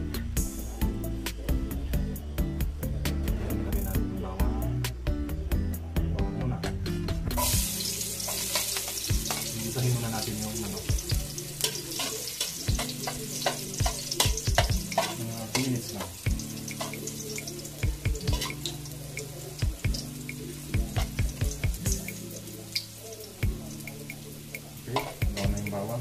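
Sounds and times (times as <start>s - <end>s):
metal spatula scraping a wok: 7.4s - 9.7s, 11.5s - 16.1s, 18.3s - 18.8s
garlic sizzling in oil: 7.4s - 26.0s.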